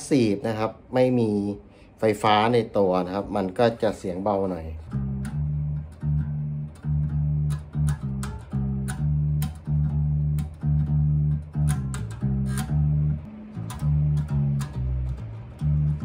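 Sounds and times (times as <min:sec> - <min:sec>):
plucked bass guitar notes: 0:04.6 - 0:16.0
string clicks: 0:04.9 - 0:16.0.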